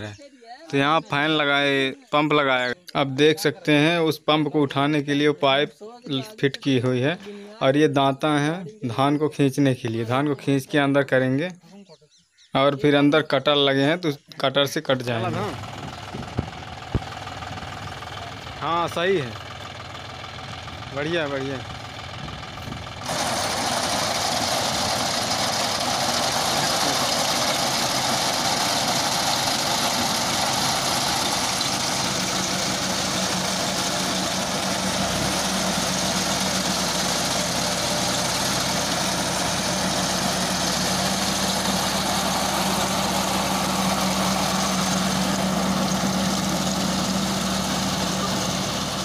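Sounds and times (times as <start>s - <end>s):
tractor diesel engine running: 0.0s - 2.8s, 14.9s - 49.0s
reaper cutting rice: 23.0s - 49.0s.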